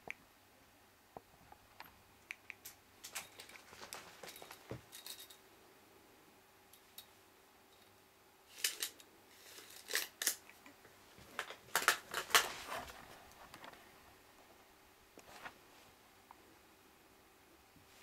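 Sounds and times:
faint steady hum: 0.0 - 18.0
sharp clicks and snips: 1.8 - 3.2.

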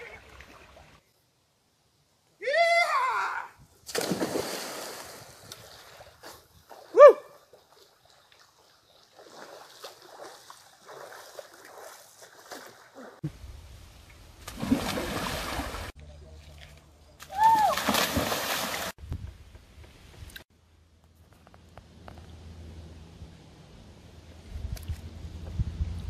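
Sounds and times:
person shouting: 2.4 - 3.6, 17.3 - 17.8
water sloshing: 3.9 - 13.2
water splashing: 3.9 - 13.2, 14.4 - 19.0.

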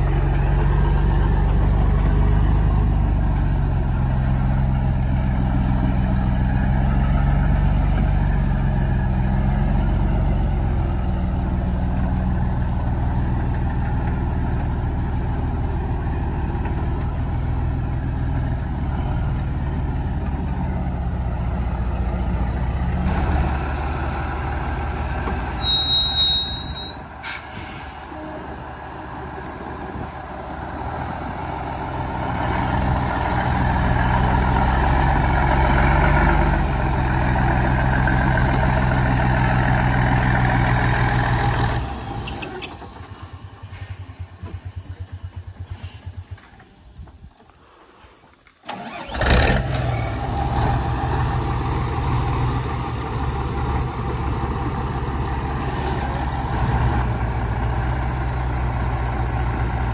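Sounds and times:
truck diesel engine running: 0.0 - 46.6, 48.7 - 59.9
high-pitched brake squeal: 25.5 - 29.5
air hiss: 45.7 - 46.4.

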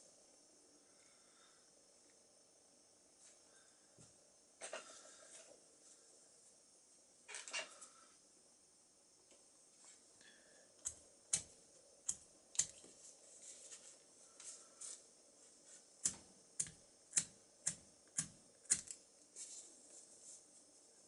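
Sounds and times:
lighter flint wheel strikes: 16.0 - 19.0.

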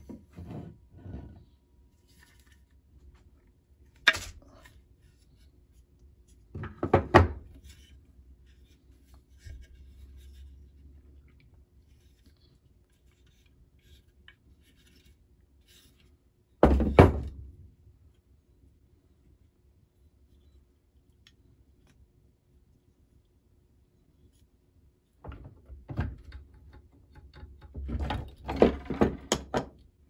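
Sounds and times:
wooden knocks and thuds on workbench: 6.6 - 7.5, 16.6 - 17.4, 27.7 - 29.8.

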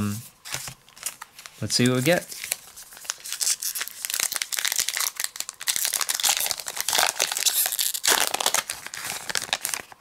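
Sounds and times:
wrapper tearing and crinkling: 2.3 - 10.0.

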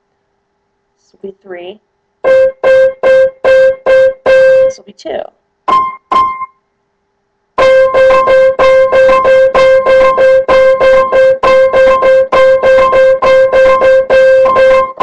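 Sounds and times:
piano repeating one note: 2.2 - 4.8, 5.7 - 6.5, 7.6 - 15.0.

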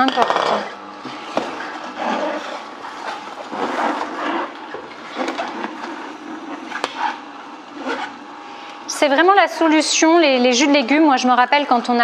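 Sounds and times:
juicer grinding: 0.0 - 8.9
faint motor hum: 0.0 - 12.0.

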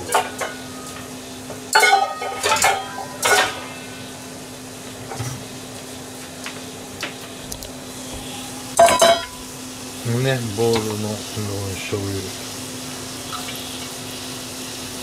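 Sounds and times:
metal pots and bowl clanking: 0.0 - 1.1, 1.7 - 4.0, 8.8 - 9.5.

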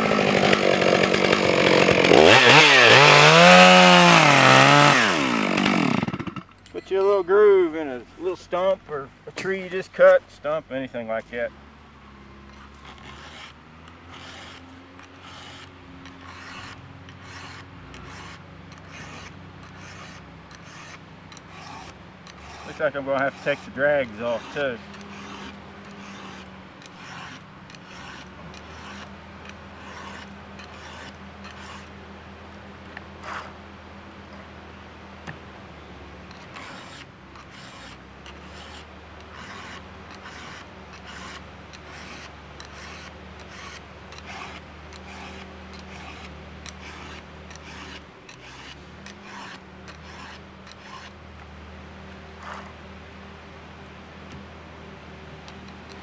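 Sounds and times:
file rasping on chainsaw chain: 0.0 - 7.2, 12.5 - 32.0, 33.2 - 33.6, 36.3 - 51.2, 52.4 - 52.8, 55.5 - 56.0.

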